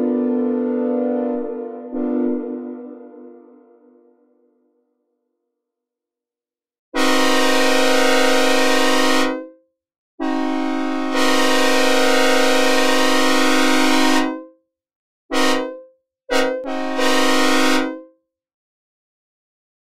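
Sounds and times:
locomotive air horn blasts: 0:00.0 - 0:04.1, 0:07.0 - 0:09.5, 0:10.2 - 0:14.5, 0:15.3 - 0:18.1.

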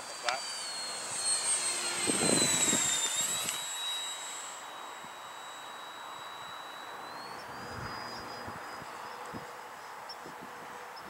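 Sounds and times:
model jet fan whining: 0:00.0 - 0:11.0.

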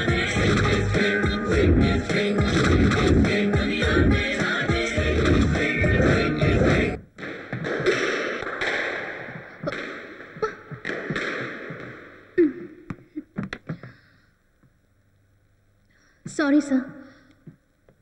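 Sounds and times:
squash ball hits echoing: 0:07.2 - 0:12.2.

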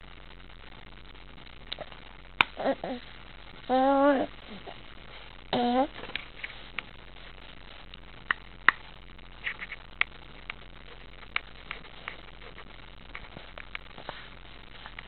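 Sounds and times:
steady low hiss: 0:00.0 - 0:15.0
small clicks and ticks: 0:07.8 - 0:14.0.

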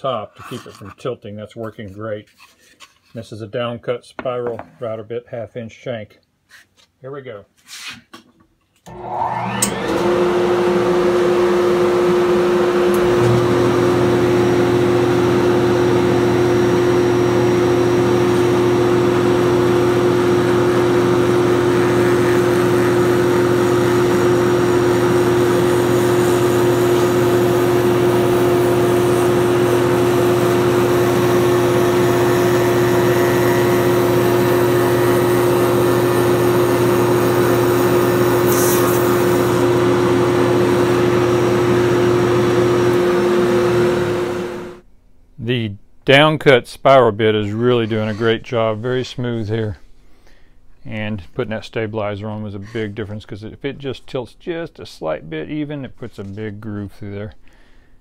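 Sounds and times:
shop vacuum running: 0:08.8 - 0:44.9
router motor spinning: 0:08.9 - 0:44.8
lower motor hum: 0:09.0 - 0:44.8.

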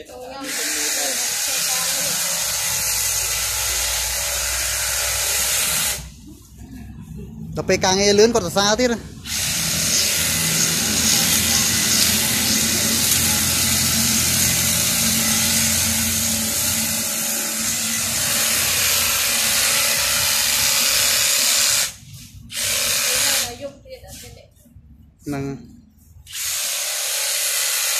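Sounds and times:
hedge trimmer cutting shrub: 0:00.3 - 0:06.1, 0:09.2 - 0:23.6.

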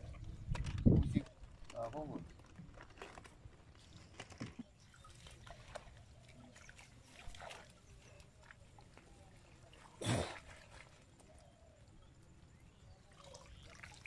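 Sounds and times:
water sloshing and dripping: 0:02.3 - 0:11.9, 0:13.1 - 0:14.0.

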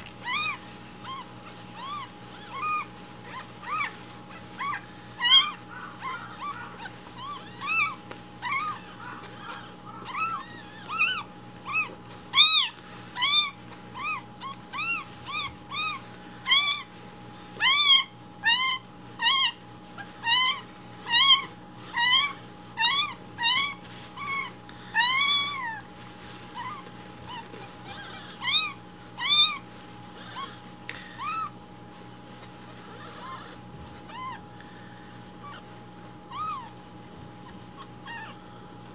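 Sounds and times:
kitten mewing: 0:00.2 - 0:16.9, 0:17.6 - 0:25.9, 0:26.5 - 0:31.6.

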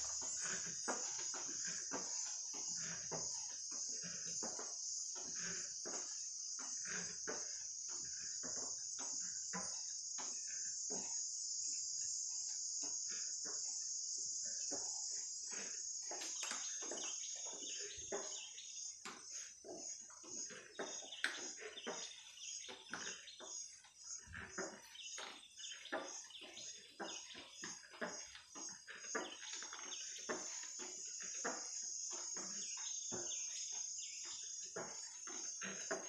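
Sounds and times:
high-pitched insect chorus: 0:00.0 - 0:36.0.

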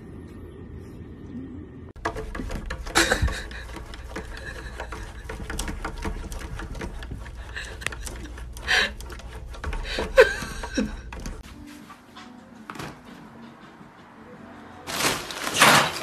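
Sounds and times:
cat paws tapping on glass: 0:02.0 - 0:11.4
sharp knocks: 0:02.0 - 0:11.4.

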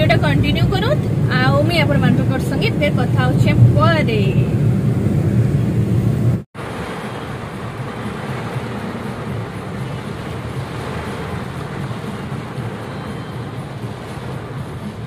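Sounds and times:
rain on car windscreen: 0:04.6 - 0:15.0
tyres hissing on wet road: 0:06.6 - 0:15.0.

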